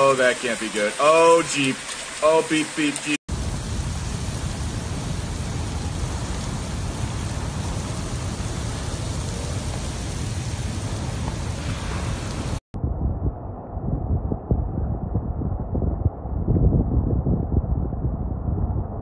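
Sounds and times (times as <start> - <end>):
heavy rain pouring: 0.0 - 12.6
deep rumble: 3.3 - 19.0.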